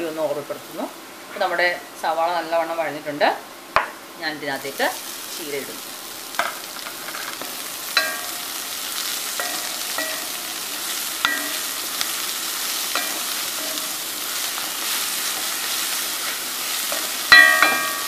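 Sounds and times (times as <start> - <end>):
leaves sizzling in hot oil: 0.0 - 18.0
spatula clinking against pan: 8.0 - 8.4, 9.4 - 10.4, 11.2 - 11.7, 16.9 - 18.0.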